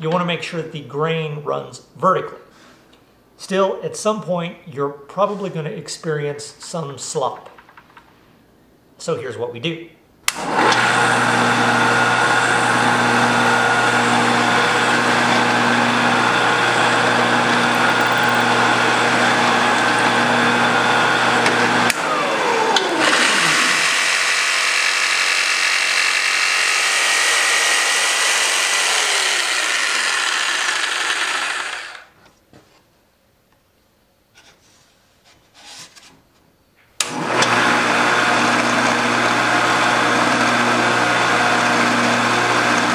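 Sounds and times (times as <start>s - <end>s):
drill press boring wood: 10.3s - 32.1s, 37.0s - 42.9s
motor humming: 14.7s - 24.0s.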